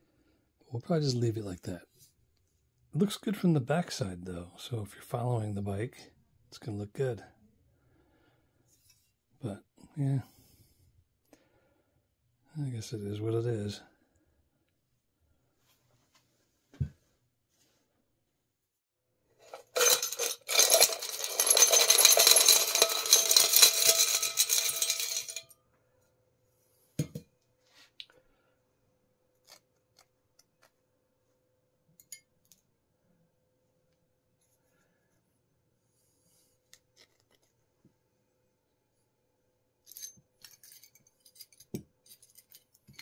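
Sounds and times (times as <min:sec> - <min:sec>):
metal parts clattering: 0:19.4 - 0:25.4, 0:39.9 - 0:43.0
metal parts clinking: 0:19.4 - 0:25.4, 0:39.8 - 0:43.0.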